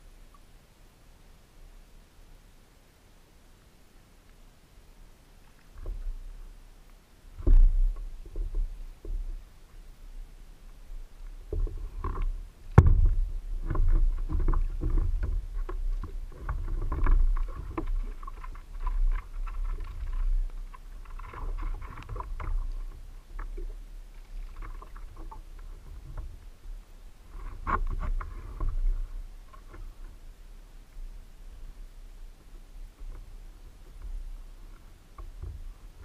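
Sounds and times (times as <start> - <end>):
knocks and bumps on kayak hull: 11.5 - 20.6.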